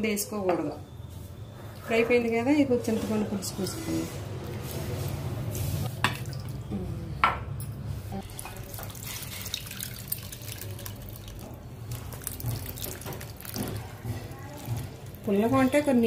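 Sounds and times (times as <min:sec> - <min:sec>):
water splashing and trickling: 0:05.9 - 0:06.8, 0:08.2 - 0:15.4.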